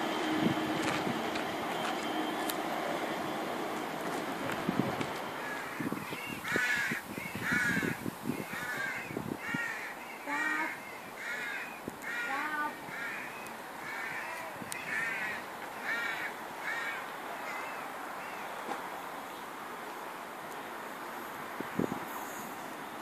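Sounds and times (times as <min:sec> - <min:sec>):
crow cawing: 0:05.4 - 0:18.4.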